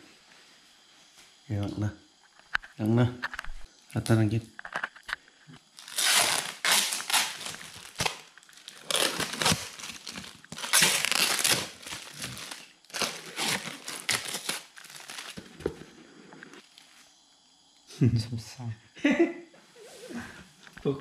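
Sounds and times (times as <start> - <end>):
rustling and crinkling: 4.6 - 17.1.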